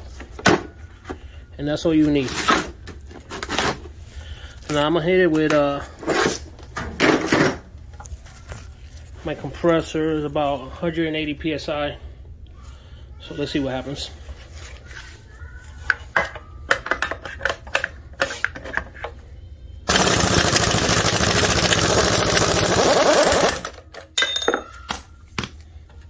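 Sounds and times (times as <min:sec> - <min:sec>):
pneumatic impact wrench hammering: 0:19.9 - 0:23.9
metal tool clanks: 0:24.0 - 0:24.9.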